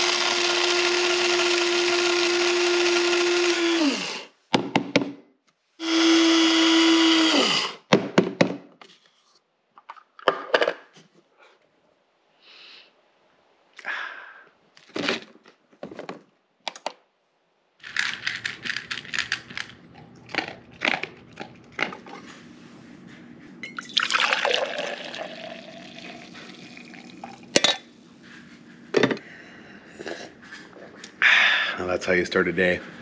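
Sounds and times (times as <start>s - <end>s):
liquid pouring into container: 23.8s - 27.5s.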